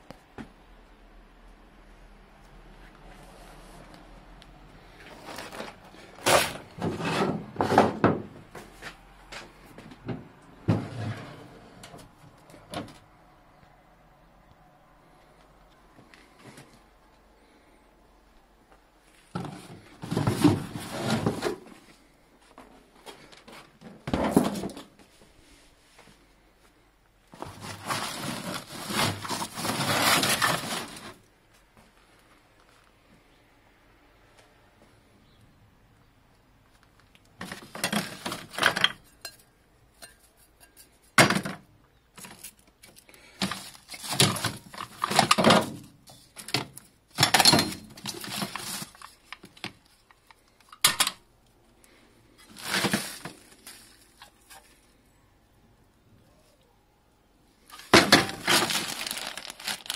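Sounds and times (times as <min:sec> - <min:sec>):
plastic bags and canvas rustling: 0:02.7 - 0:13.0, 0:19.0 - 0:26.6, 0:27.3 - 0:33.0, 0:36.8 - 0:39.0, 0:42.1 - 0:50.4, 0:52.2 - 0:55.0, 0:57.6 - 0:59.9.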